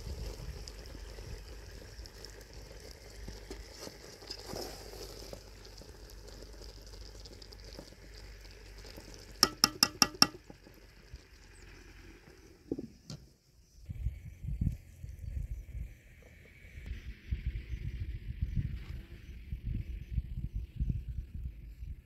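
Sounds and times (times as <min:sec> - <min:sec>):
ladle stirring thick jam: 0:02.1 - 0:10.8
ladle tapping metal pot: 0:09.4 - 0:10.5.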